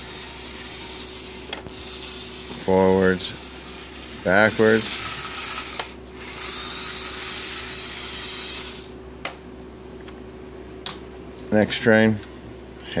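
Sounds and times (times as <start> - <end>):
toy train motor whirring: 0.0 - 9.0.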